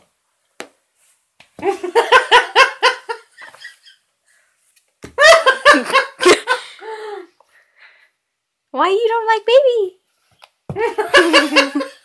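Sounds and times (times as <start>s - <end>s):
person laughing: 5.2s - 7.2s, 10.8s - 12.0s.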